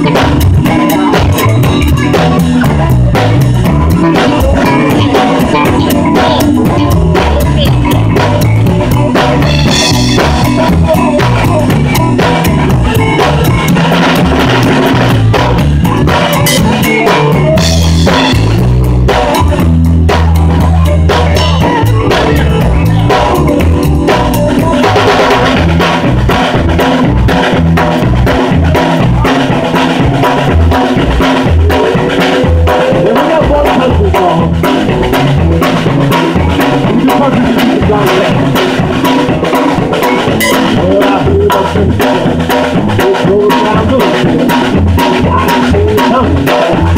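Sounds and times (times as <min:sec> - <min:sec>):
live rock band playing: 0:00.0 - 0:46.9
cymbals: 0:40.2 - 0:40.8.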